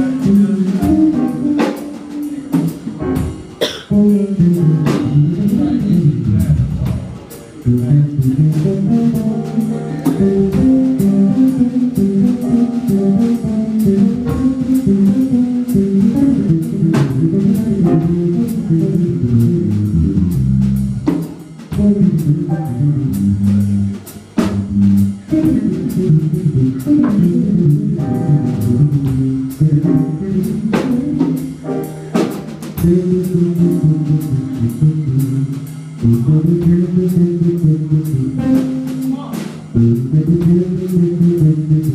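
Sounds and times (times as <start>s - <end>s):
live band playing: 0.0s - 41.9s.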